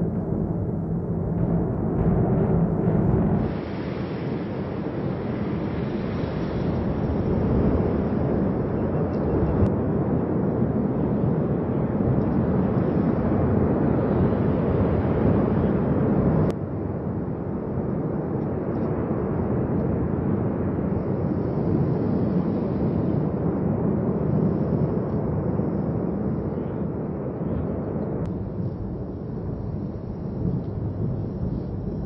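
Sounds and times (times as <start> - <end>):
volcano roaring: 0.0 - 12.0.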